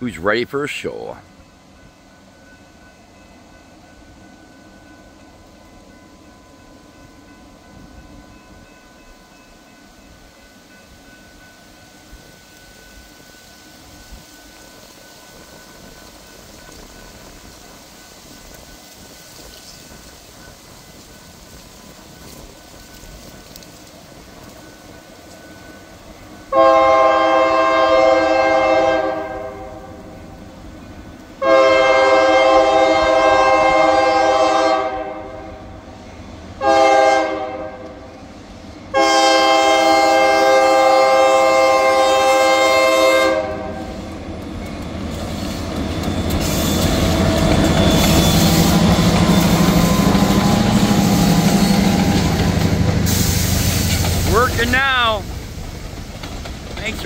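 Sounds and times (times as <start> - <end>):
train rumble: 0.0 - 57.0
locomotive air horn blasts: 26.5 - 30.0, 31.4 - 35.7, 36.6 - 38.0, 38.9 - 44.0.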